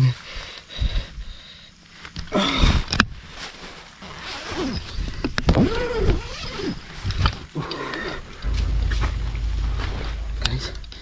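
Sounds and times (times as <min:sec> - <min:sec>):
tent zipper rasping: 0:05.6 - 0:06.9.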